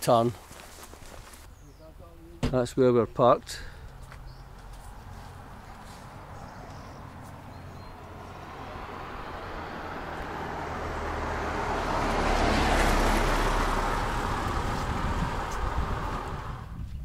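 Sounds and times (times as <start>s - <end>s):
car passing by: 4.6s - 16.8s.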